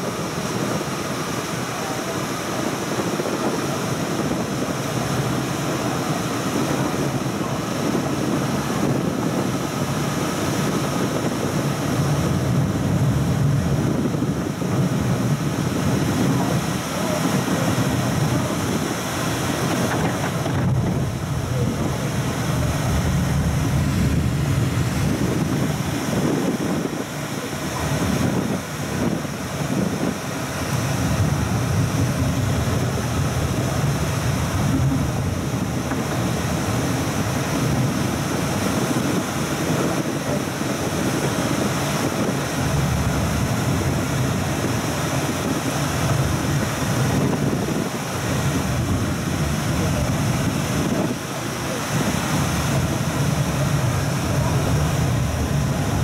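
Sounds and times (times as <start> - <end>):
train wheels rumbling on rails: 19.6 - 25.8.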